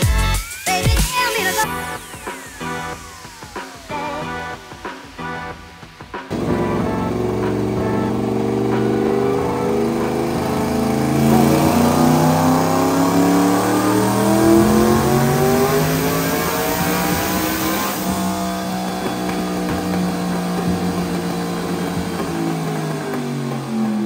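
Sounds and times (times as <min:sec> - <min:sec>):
truck engine accelerating: 0:06.3 - 0:24.0.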